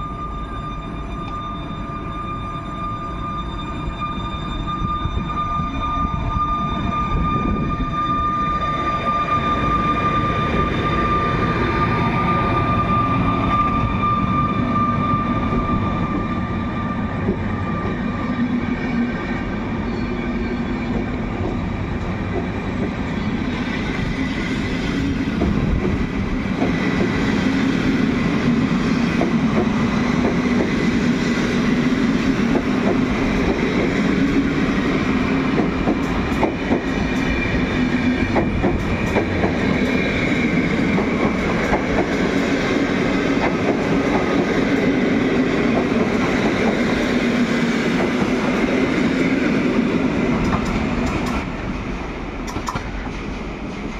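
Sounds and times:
train coaches rumbling past: 0.0s - 53.9s.

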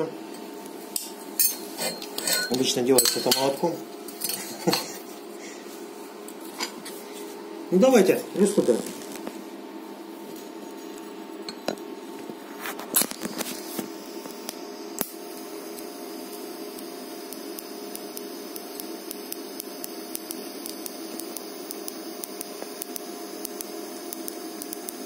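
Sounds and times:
welding arc hissing and buzzing: 0.0s - 25.0s
welding arc crackles: 12.2s - 25.0s.

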